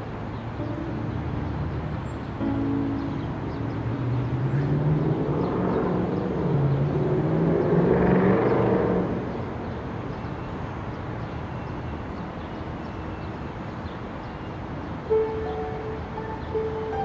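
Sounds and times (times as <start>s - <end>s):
street traffic: 0.0s - 17.0s
vehicle engine passing: 3.8s - 9.5s.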